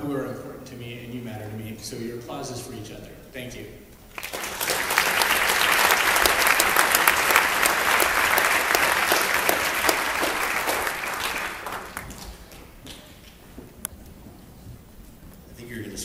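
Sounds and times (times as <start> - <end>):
audience applauding: 4.1 - 13.1.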